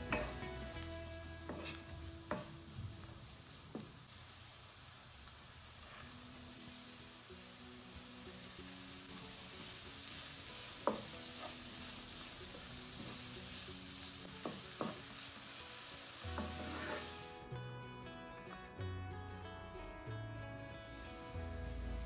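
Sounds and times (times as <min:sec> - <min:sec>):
vegetables sizzling in oil: 0:00.0 - 0:17.5, 0:20.7 - 0:22.0
spatula stirring: 0:01.3 - 0:04.0, 0:16.3 - 0:17.3.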